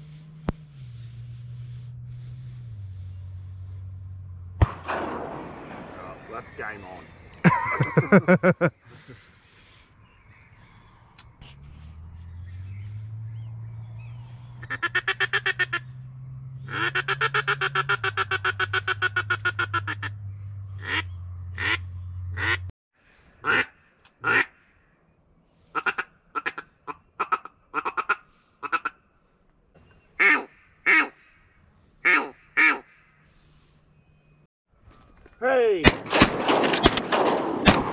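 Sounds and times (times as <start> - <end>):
steady low hum: 0.0 - 9.2
duck quacking: 14.6 - 15.9, 16.6 - 20.2, 20.8 - 22.7, 23.4 - 24.6, 25.8 - 29.0, 30.2 - 31.3, 32.0 - 33.0.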